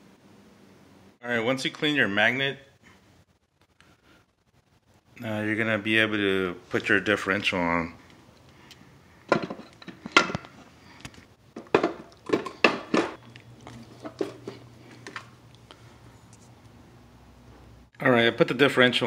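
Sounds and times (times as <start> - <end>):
metal clinking and knocking: 9.3 - 10.6, 11.6 - 13.2.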